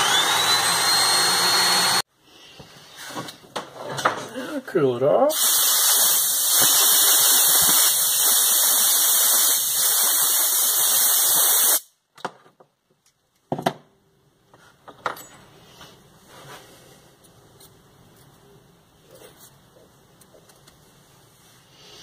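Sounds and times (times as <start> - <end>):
compressed air hissing from blow gun: 5.3 - 11.9.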